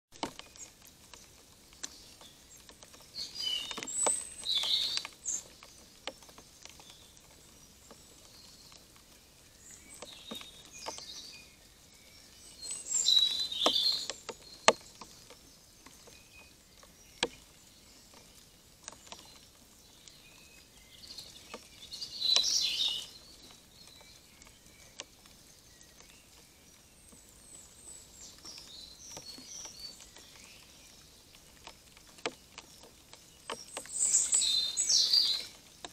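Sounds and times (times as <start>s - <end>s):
raindrops dripping on camera: 0.1s - 35.9s
songbird song: 0.1s - 35.9s.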